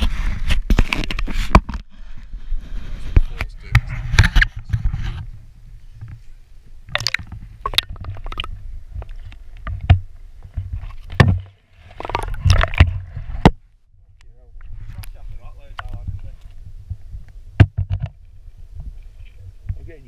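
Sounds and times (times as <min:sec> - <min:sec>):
muffled underwater rumble: 0:02.0 - 0:19.8
camera knocking against rock: 0:17.6 - 0:18.2.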